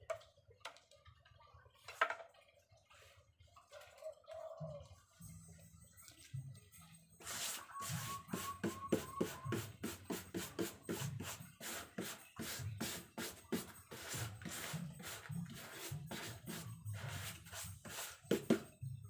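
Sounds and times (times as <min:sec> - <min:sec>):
rapid rubbing on paper: 0:07.2 - 0:18.6.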